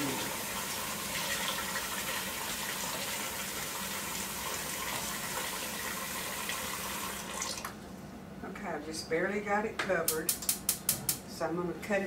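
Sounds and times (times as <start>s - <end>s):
water running into a pot: 0.0s - 7.8s.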